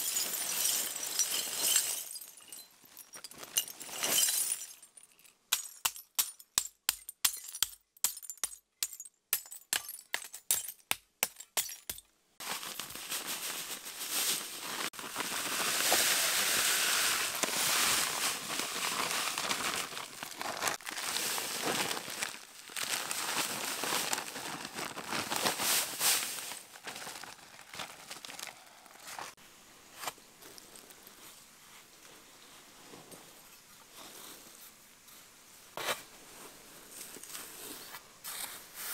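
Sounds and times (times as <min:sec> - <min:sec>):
hatchet smashing glass bottles: 0:00.0 - 0:12.1.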